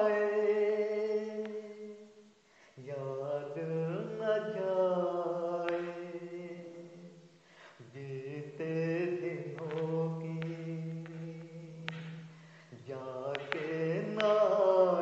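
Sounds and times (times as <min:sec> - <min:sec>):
man singing solo: 0:00.0 - 0:15.0.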